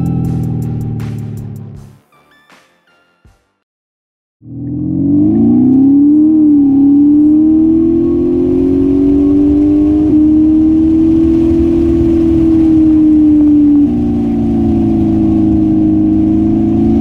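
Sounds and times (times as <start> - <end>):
synthetic engine note rising: 4.4 - 17.0.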